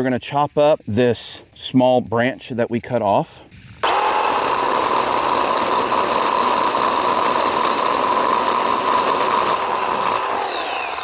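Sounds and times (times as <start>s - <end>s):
cordless chainsaw cutting branch: 3.8s - 11.0s.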